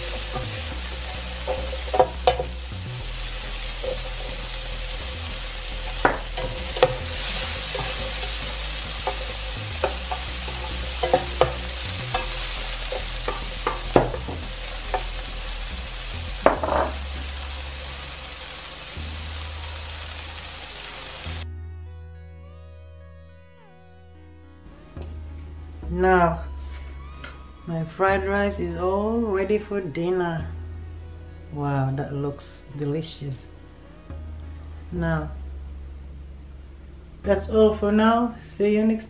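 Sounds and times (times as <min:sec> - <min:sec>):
vegetables sizzling in a frying pan: 0:00.0 - 0:21.4.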